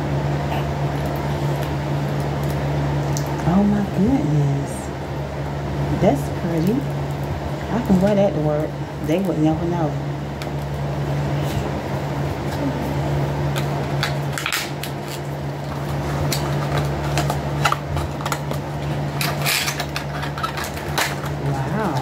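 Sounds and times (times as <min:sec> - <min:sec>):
electric fan humming: 0:00.0 - 0:22.0
items clicking and rustling: 0:13.5 - 0:22.0.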